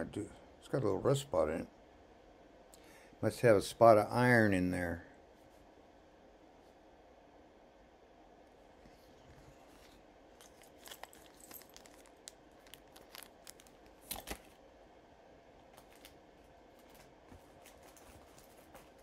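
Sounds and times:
rustling: 15.7s - 19.0s.

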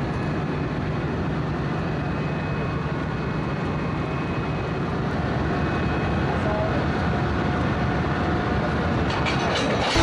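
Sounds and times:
electric locomotive rumbling: 0.0s - 10.0s.

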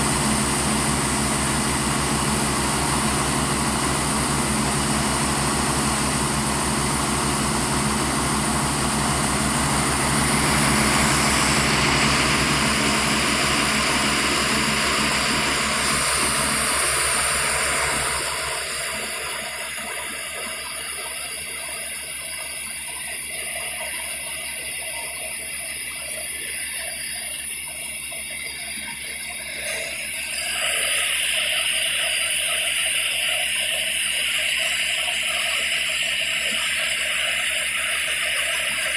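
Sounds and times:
engine drone: 0.0s - 38.9s
water and air rushing from borewell: 0.0s - 38.9s.

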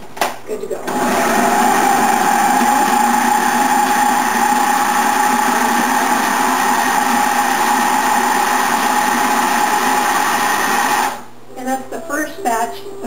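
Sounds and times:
food processor motor whining: 0.9s - 11.3s.

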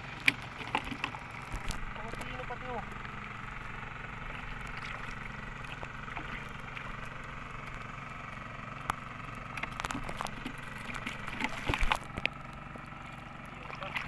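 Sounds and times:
low engine drone: 0.0s - 14.0s
hands splashing in shallow water: 9.6s - 12.3s.

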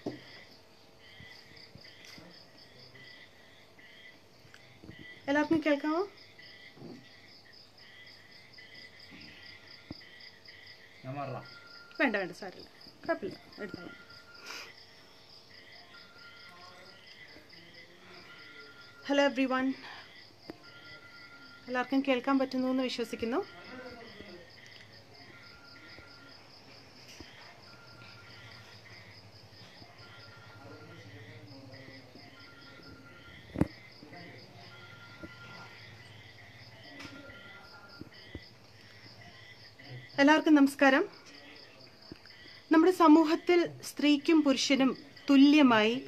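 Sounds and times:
insects chirping: 0.0s - 46.0s
short steady beeps: 34.6s - 36.3s.

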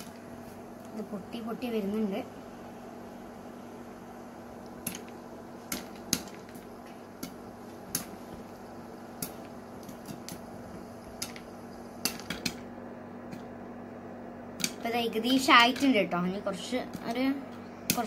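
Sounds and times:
steady hiss: 0.0s - 12.7s
popcorn popping against lid: 4.6s - 13.6s, 14.5s - 18.0s.

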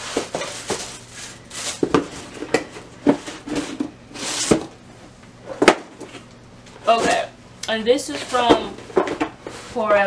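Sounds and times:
cardboard boxes rustling: 0.0s - 2.4s, 6.8s - 7.3s.

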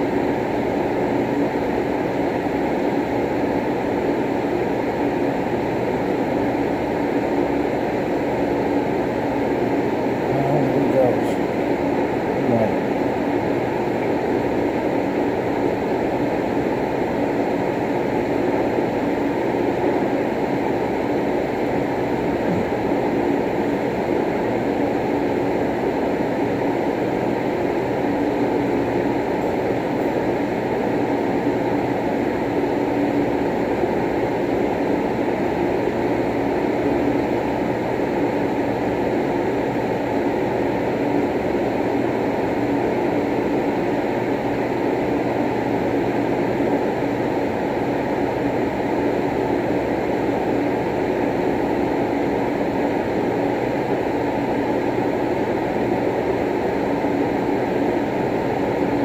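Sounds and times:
faint constant hum: 0.0s - 59.0s
low droning background noise: 9.8s - 15.2s.

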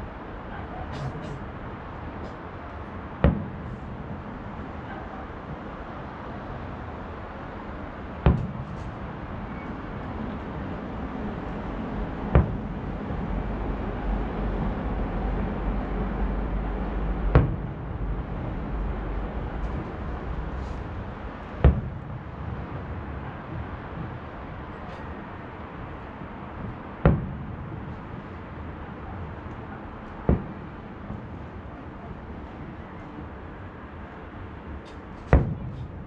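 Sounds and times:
city background hum: 0.0s - 36.0s
distant fireworks booming: 2.2s - 6.7s, 7.9s - 14.8s, 16.2s - 25.2s, 25.8s - 31.8s, 34.8s - 36.0s.

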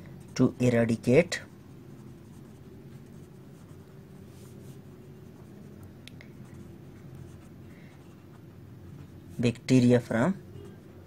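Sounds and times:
steady low hum: 0.0s - 11.0s
pen scratching on paper: 0.2s - 9.4s.

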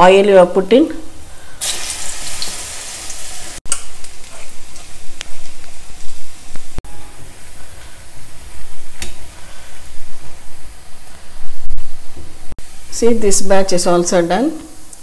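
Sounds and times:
oil sizzling while deep-frying: 1.6s - 6.8s.

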